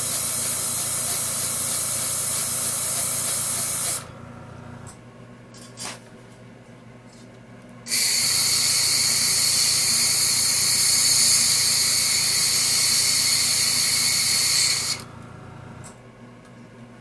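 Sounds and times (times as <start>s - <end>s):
airbrush air hiss: 7.9s - 15.0s.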